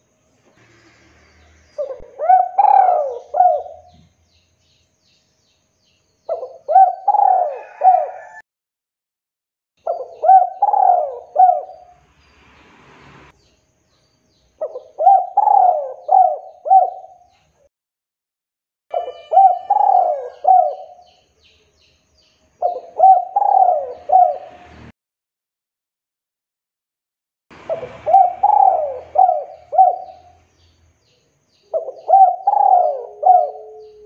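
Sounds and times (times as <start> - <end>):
dove cooing: 1.8 - 4.1, 6.3 - 8.4, 9.8 - 11.9, 14.6 - 17.3, 18.9 - 21.0, 22.6 - 24.6, 27.6 - 30.4, 31.7 - 34.0.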